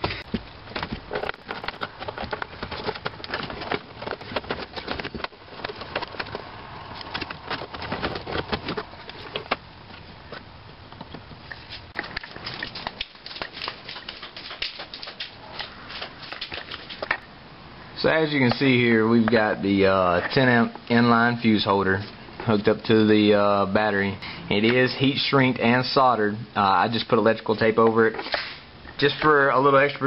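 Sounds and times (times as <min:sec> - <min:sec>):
plastic wiring crackling and rustling: 0:00.0 - 0:17.3.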